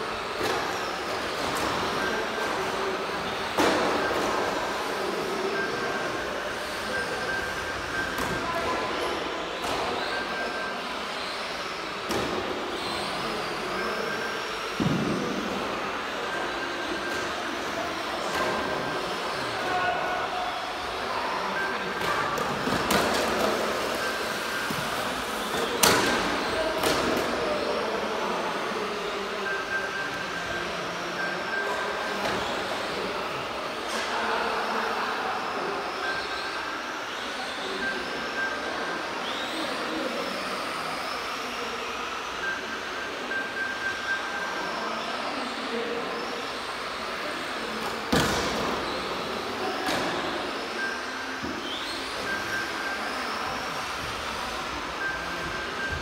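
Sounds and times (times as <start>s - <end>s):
rc truck motors whirring: 0.0s - 19.7s, 20.5s - 56.0s.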